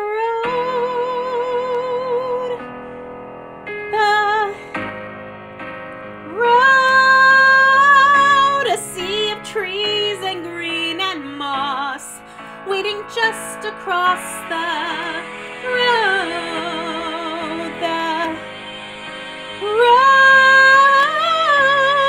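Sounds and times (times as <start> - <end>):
woman singing: 0.0 - 2.6, 3.9 - 4.7, 6.3 - 18.6, 19.5 - 22.0
karaoke instrumental backing track: 3.7 - 22.0.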